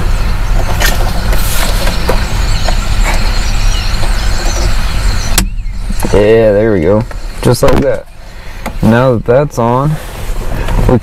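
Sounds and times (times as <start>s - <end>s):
low rumble on microphone: 0.0s - 11.0s.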